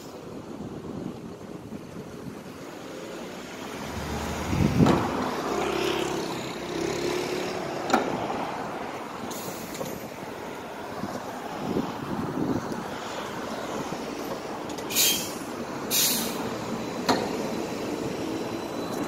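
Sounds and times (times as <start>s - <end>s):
vehicle noise: 0.0s - 19.0s
trolley pole sharp click: 14.3s - 16.4s.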